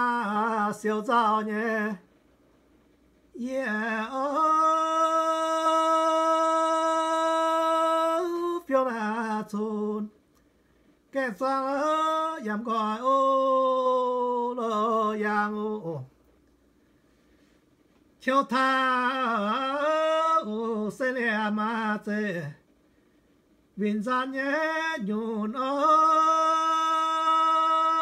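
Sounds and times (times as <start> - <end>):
person breathing: 10.4 - 11.0, 16.8 - 17.7.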